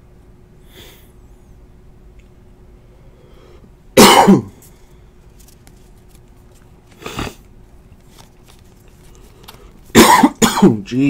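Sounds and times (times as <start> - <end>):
man coughing: 4.0 - 4.6, 9.9 - 11.0
trading cards shuffled: 4.6 - 10.0.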